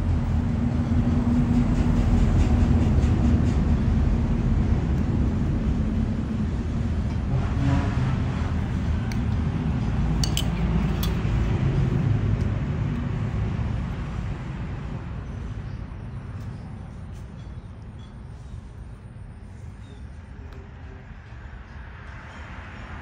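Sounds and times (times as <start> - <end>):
metal spoon clinking ceramic bowl: 10.2 - 11.2.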